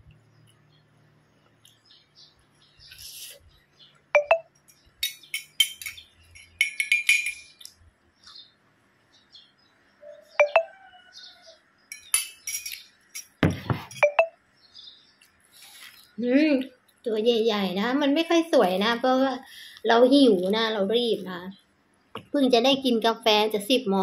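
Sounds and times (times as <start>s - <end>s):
spoon clinking against glass cup: 4.2s - 7.7s, 11.9s - 14.3s
glass set down with knock: 13.4s - 14.2s.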